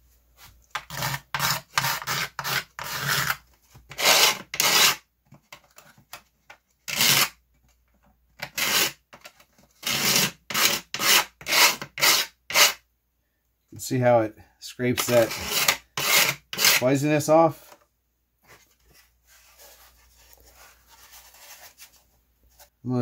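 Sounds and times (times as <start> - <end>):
blade scraping epoxy: 0.8 - 3.4, 4.0 - 5.0, 15.0 - 16.8.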